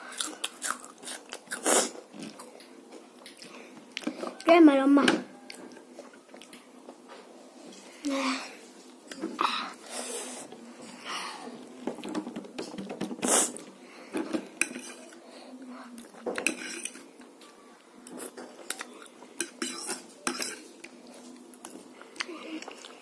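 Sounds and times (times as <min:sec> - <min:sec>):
fork scraping on plate: 0:14.6 - 0:15.1, 0:16.4 - 0:17.0.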